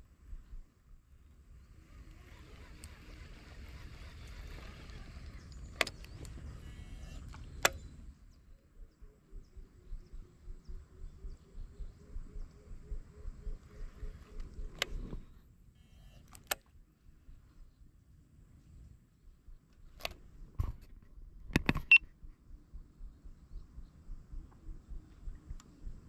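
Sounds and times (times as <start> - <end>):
fishing reel winding: 1.8 - 6.0
sharp clicks: 2.0 - 8.1, 13.5 - 16.8, 19.6 - 22.2, 24.4 - 26.0.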